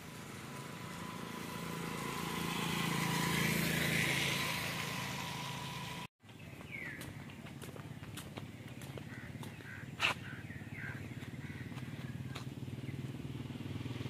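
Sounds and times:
vehicle passing on wet road: 0:00.0 - 0:06.1.

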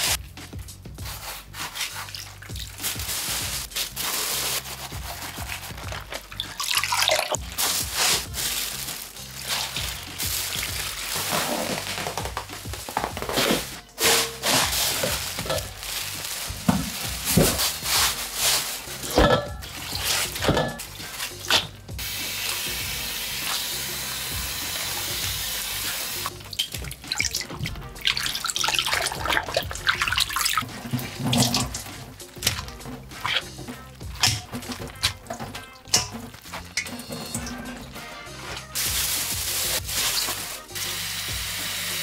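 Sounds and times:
background music: 0:00.0 - 0:42.0
splashing and clattering dishes: 0:01.8 - 0:03.9, 0:04.8 - 0:12.7, 0:13.3 - 0:21.8, 0:26.2 - 0:40.6.

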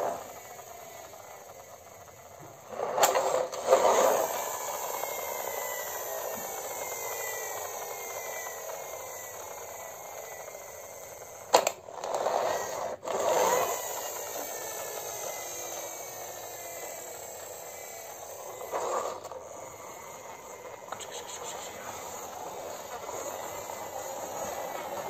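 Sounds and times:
plastic toy click: 0:11.5 - 0:11.8.

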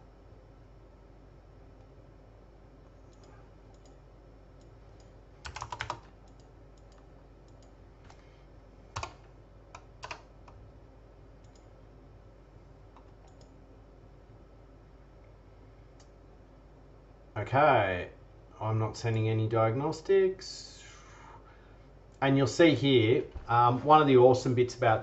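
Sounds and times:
faint steady hum: 0:00.0 - 0:25.0
keyboard keys tapping: 0:05.4 - 0:08.2, 0:09.8 - 0:10.3.

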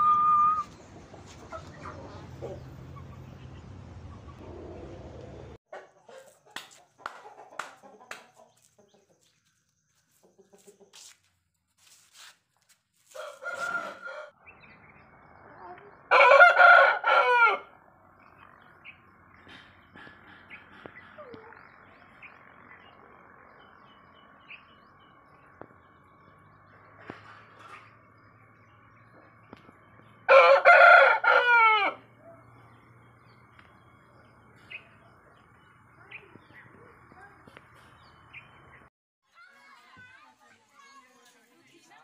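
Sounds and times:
rooster crowing: 0:13.1 - 0:14.4, 0:16.1 - 0:17.8, 0:30.3 - 0:32.1.

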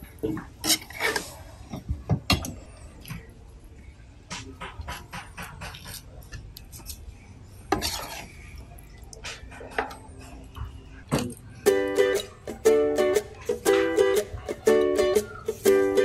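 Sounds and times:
spatula scraping metal wok: 0:00.6 - 0:01.4, 0:07.7 - 0:08.4
plucked-string music: 0:11.6 - 0:16.0.

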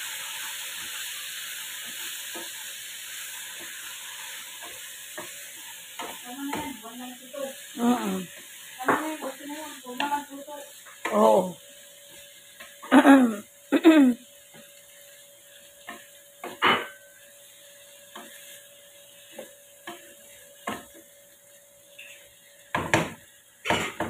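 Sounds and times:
faint sizzle: 0:00.0 - 0:24.0
spatula scraping wok: 0:14.3 - 0:24.0.

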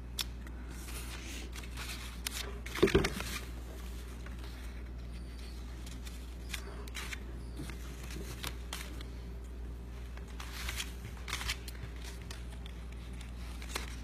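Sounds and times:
paper rustling and tapping: 0:01.7 - 0:03.5.

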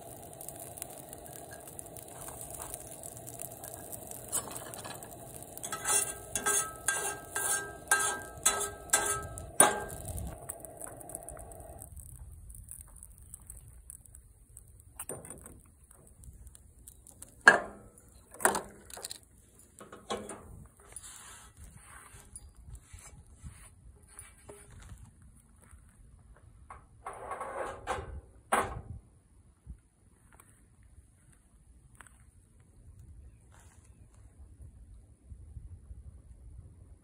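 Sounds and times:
camp stove burner hissing: 0:00.0 - 0:22.3
metal taps on a skillet: 0:05.6 - 0:10.0.

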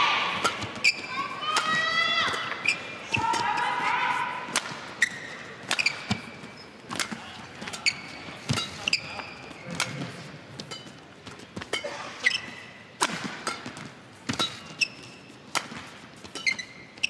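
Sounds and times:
murmur of large hall: 0:00.0 - 0:17.0
rackets striking shuttlecock: 0:00.3 - 0:03.6, 0:04.5 - 0:08.8, 0:13.0 - 0:14.9, 0:15.5 - 0:16.7
court shoes squeaking: 0:00.3 - 0:17.0.

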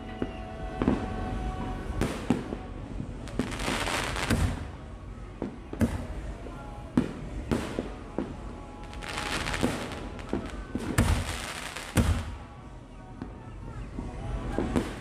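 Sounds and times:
firework crackling: 0:00.0 - 0:15.0
firework bangs: 0:00.2 - 0:12.6, 0:14.3 - 0:15.0.

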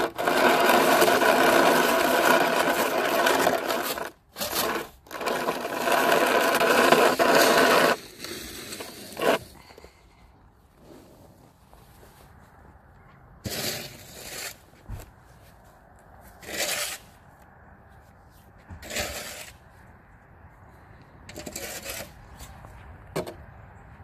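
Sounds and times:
snow shovel scraping pavement: 0:00.0 - 0:10.1, 0:10.7 - 0:12.3, 0:13.4 - 0:17.4, 0:18.3 - 0:19.7, 0:21.3 - 0:23.3.

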